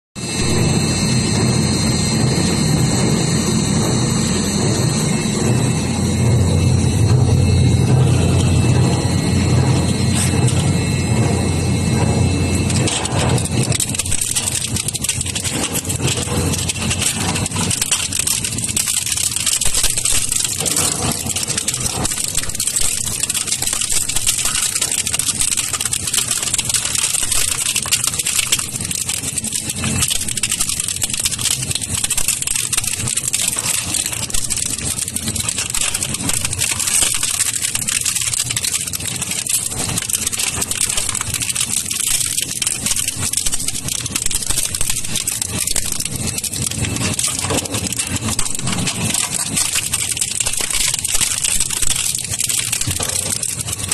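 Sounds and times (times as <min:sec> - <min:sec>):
shredder running: 0:00.2 - 0:53.9
plastic cracking and rattling: 0:12.5 - 0:53.9.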